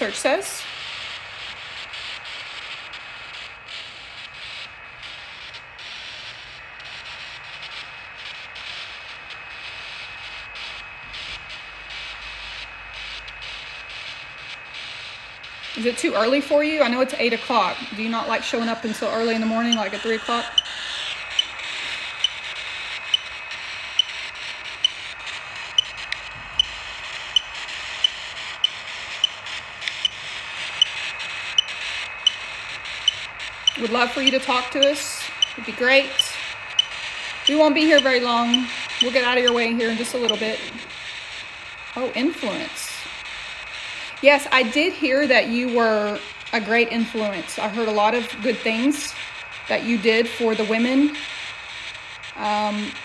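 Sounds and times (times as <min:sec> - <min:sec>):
faint steady tone: 0:00.0 - 0:53.0
radio static hiss: 0:00.0 - 0:53.0.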